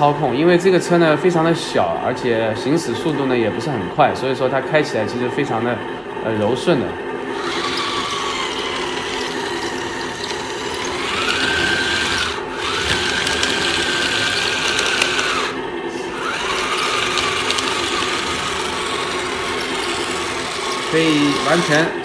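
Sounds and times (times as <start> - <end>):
toy tank electric motors whining: 7.3 - 22.0.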